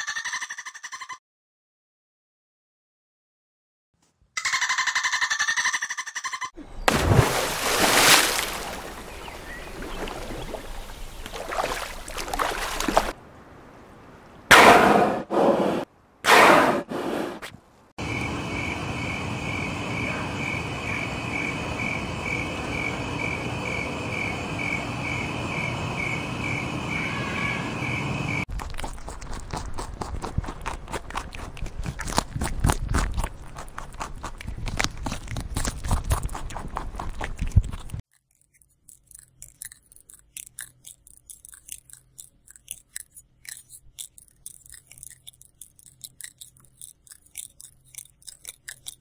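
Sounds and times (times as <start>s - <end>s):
cricket chirping: 18.0s - 28.5s
insect chorus hiss: 18.0s - 28.5s.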